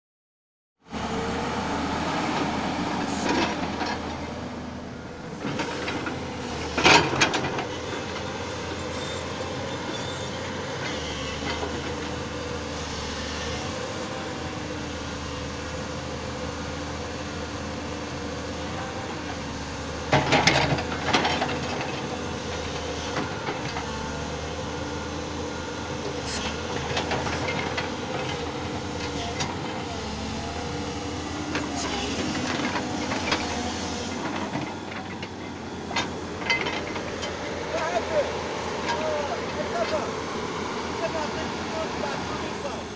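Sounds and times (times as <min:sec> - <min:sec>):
excavator engine and hydraulics: 0:00.8 - 0:42.9.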